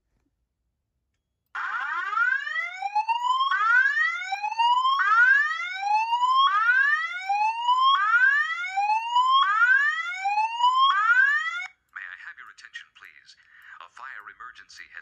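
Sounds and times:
fire alarm rising sweep tone: 1.6s - 11.7s.

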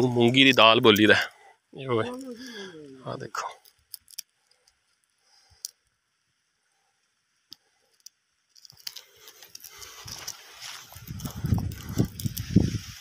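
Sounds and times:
crackling rustle: 6.7s - 13.0s.

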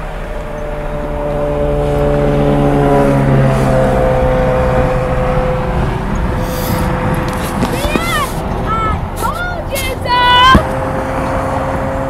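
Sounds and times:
truck engine and tyres rumbling: 0.0s - 12.0s
truck air horn: 6.4s - 8.4s.

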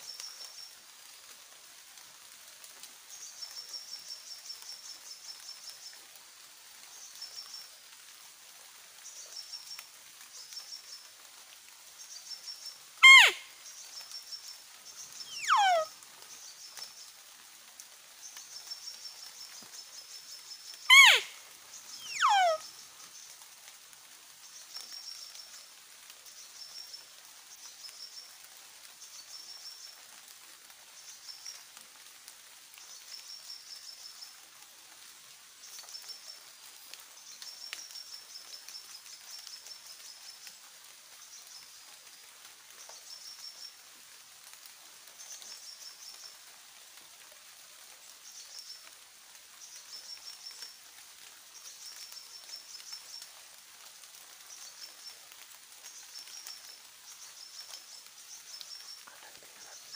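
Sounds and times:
faint steady hiss: 0.0s - 59.9s
high chirping trills: 13.0s - 13.4s, 15.3s - 15.9s, 20.9s - 21.4s, 22.0s - 22.6s.

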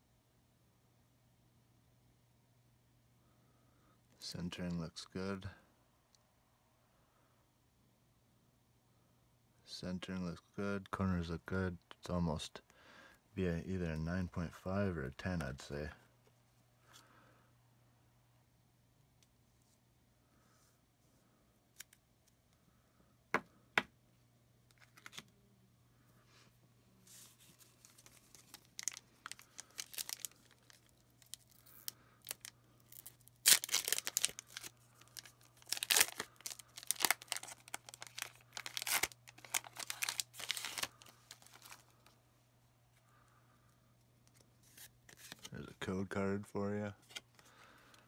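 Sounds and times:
card packaging tearing: 27.5s - 41.9s, 44.7s - 45.5s.

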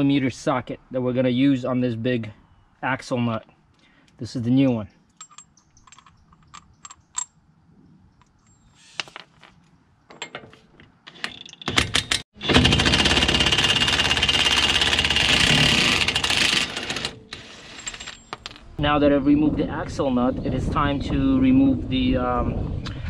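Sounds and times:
impact wrench hammering: 11.4s - 17.2s.

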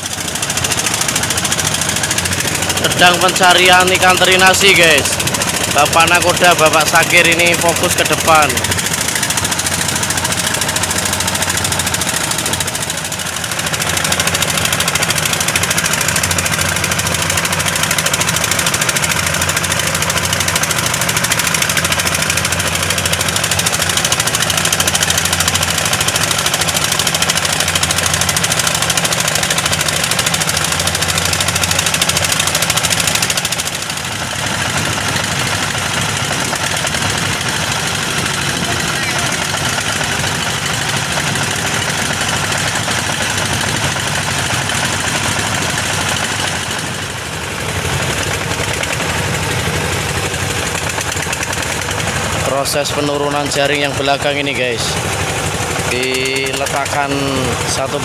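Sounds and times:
diesel boat engines: 0.0s - 58.0s.

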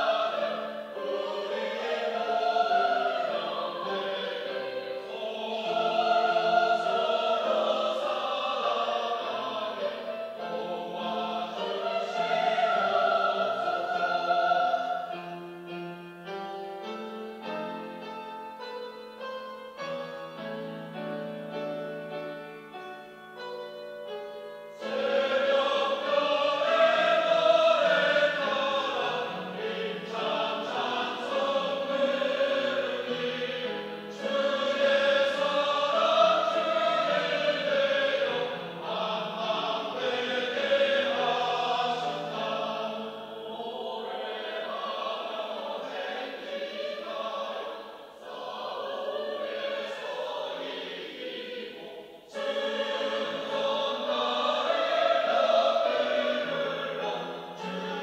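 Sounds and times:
mixed choir singing: 0.0s - 18.5s, 24.6s - 58.0s.

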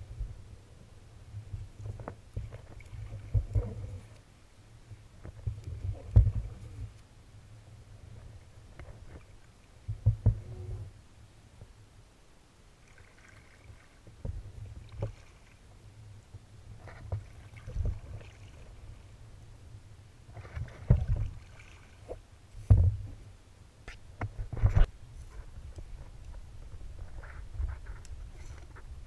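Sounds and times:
paddle splashing in water: 12.8s - 14.2s, 14.8s - 15.7s, 20.3s - 22.2s.

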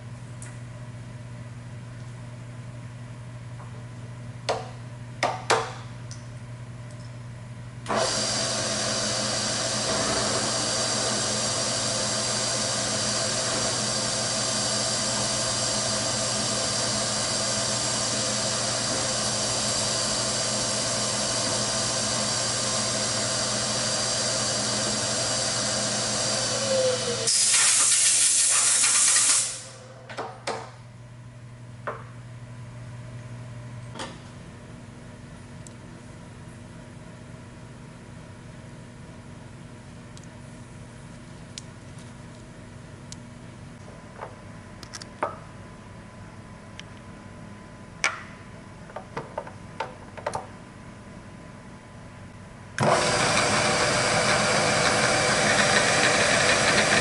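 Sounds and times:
milling machine spindle whine: 7.9s - 27.4s, 52.8s - 57.0s
loud hiss: 27.2s - 29.8s.

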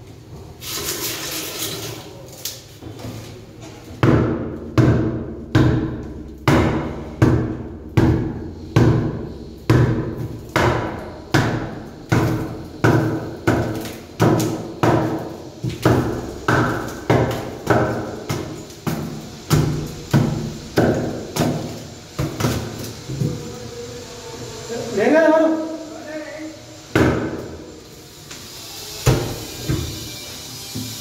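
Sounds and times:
bar striking concrete wall: 4.0s - 22.7s, 27.0s - 27.5s.

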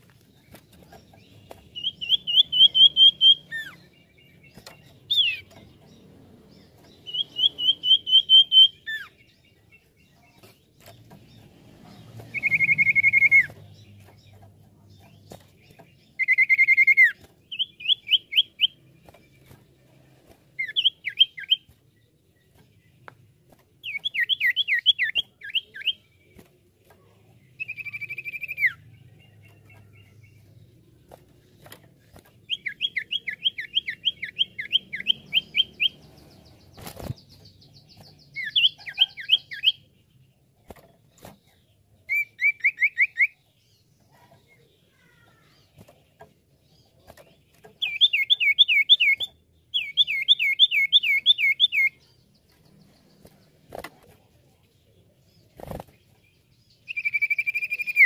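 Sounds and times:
bird singing whistles: 1.8s - 3.8s, 7.1s - 9.1s, 12.3s - 13.6s, 16.2s - 18.8s, 42.1s - 43.4s, 56.9s - 58.0s.

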